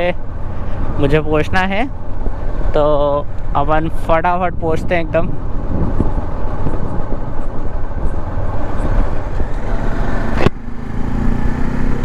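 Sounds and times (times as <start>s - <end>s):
wind and road noise: 0.0s - 12.0s
motorcycle engine running: 5.4s - 12.0s.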